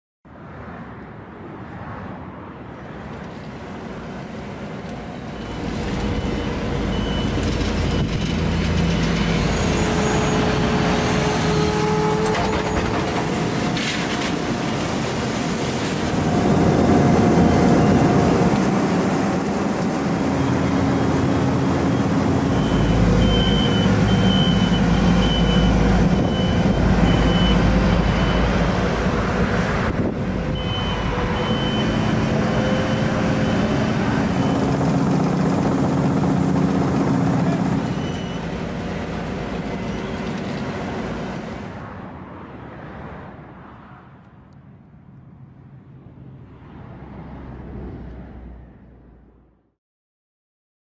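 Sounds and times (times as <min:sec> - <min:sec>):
diesel engines running: 0:02.8 - 0:41.8
reversing alarm beeping: 0:05.0 - 0:13.0, 0:17.3 - 0:28.9, 0:30.5 - 0:35.0, 0:37.4 - 0:41.3.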